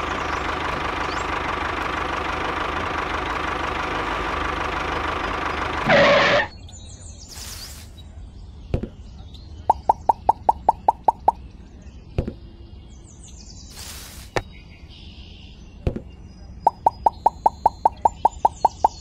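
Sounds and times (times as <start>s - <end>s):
cartoon pop sound effects: 9.7s - 11.4s, 16.7s - 19.0s.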